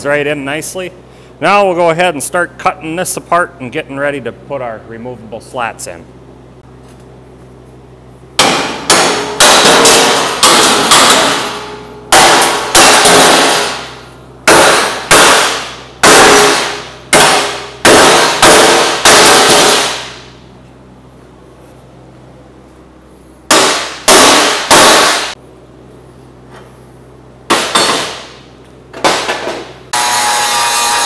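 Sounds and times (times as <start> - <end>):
hammer striking steel: 8.4 - 20.4, 23.5 - 25.4, 27.5 - 31.0.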